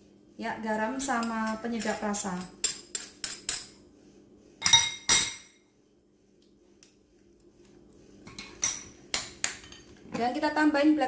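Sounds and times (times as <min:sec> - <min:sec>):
spoon clinking on dishes: 0:04.6 - 0:05.6.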